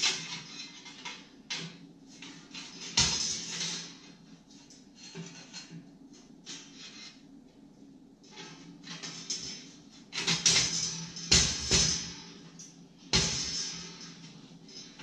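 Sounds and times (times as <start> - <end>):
sheet metal clank: 0.0 - 4.2, 8.3 - 15.0
metal scraping: 0.0 - 7.3, 8.2 - 15.0.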